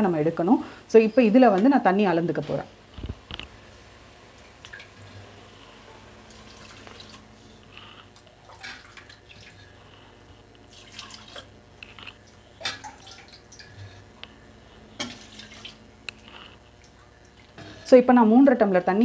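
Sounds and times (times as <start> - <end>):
water splashing into pot: 8.5 - 9.6, 12.6 - 13.7.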